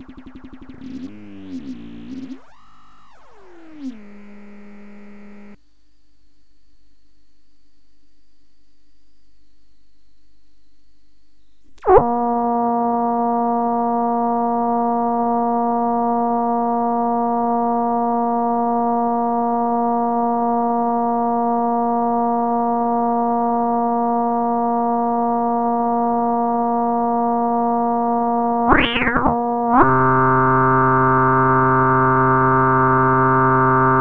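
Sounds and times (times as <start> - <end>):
synthesizer drone: 0.0 - 5.6, 28.7 - 34.0.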